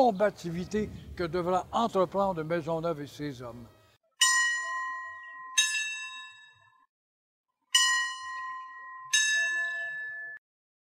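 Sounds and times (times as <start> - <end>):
church bells ringing: 4.2 - 6.9, 7.7 - 10.4.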